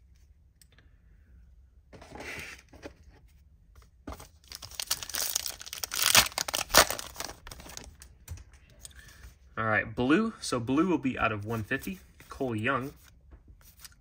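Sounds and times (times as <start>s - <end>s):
wrapper rustling: 4.4s - 8.0s
wrapper being torn open: 4.5s - 7.8s.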